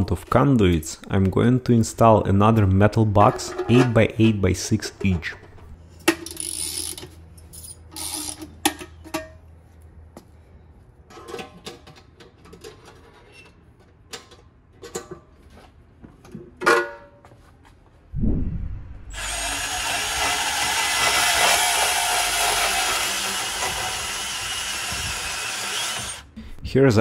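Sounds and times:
band saw cutting metal: 0:19.1 - 0:26.3.

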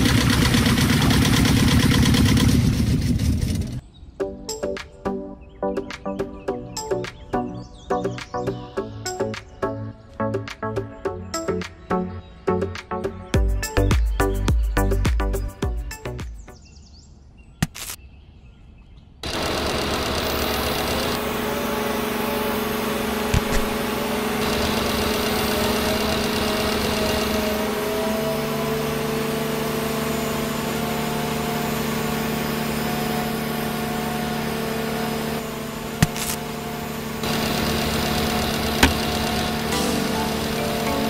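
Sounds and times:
gear motor humming: 0:19.2 - 0:41.0.

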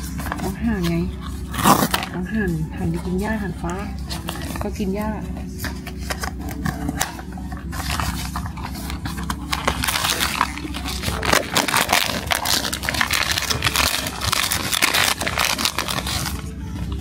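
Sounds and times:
foil pouch crinkling: 0:05.5 - 0:17.0
cardboard box being opened: 0:05.6 - 0:16.4.

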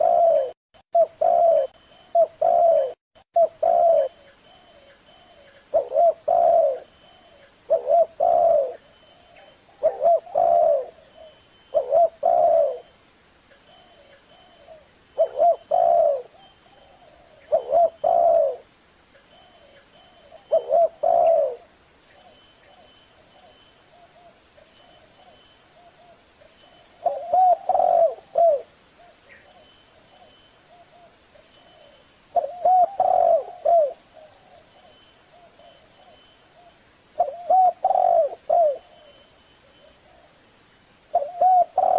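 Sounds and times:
dove cooing: 0:00.0 - 0:13.0, 0:13.7 - 0:18.7, 0:19.4 - 0:40.4, 0:41.1 - 0:41.9.

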